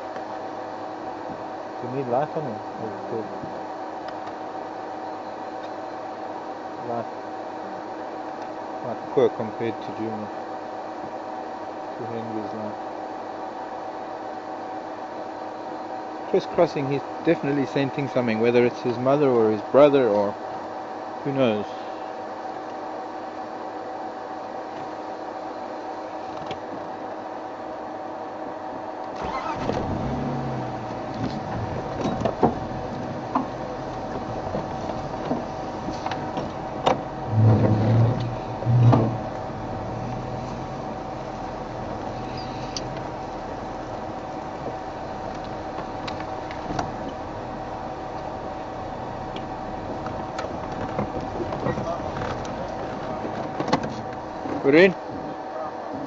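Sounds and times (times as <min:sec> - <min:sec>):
vehicle engine starting and running: 0:29.1 - 0:54.7
engine revving: 0:29.2 - 0:53.2.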